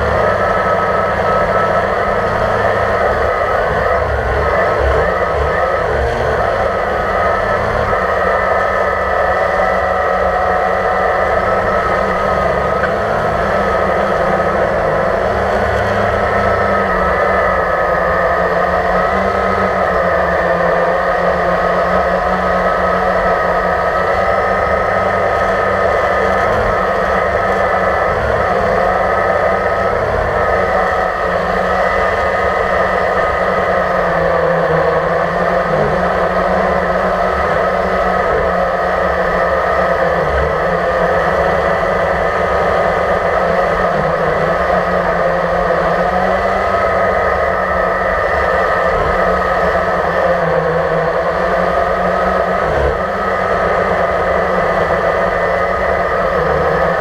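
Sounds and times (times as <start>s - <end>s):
drone propellers whirring: 0.0s - 57.0s.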